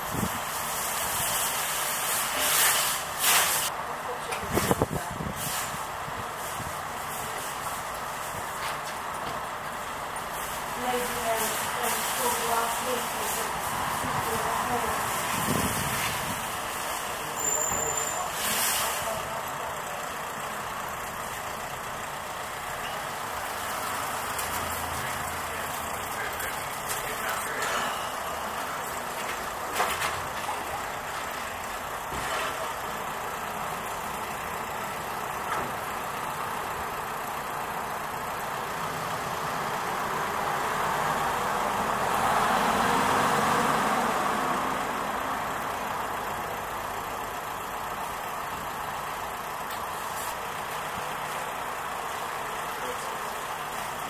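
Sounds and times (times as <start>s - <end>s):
road traffic: 0.0s - 54.0s
vehicle passing: 39.2s - 45.5s.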